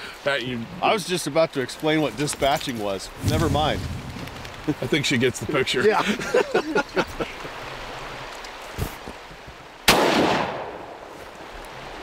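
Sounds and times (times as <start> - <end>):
shotgun shot: 9.9 - 11.0.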